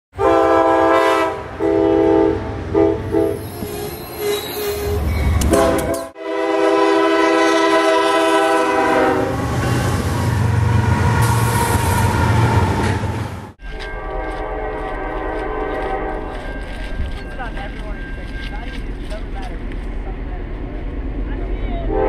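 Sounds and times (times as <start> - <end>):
locomotive air horn blasts: 0.2 - 3.5, 5.4 - 12.1, 13.8 - 16.3
diesel locomotives rumbling past: 0.2 - 22.0.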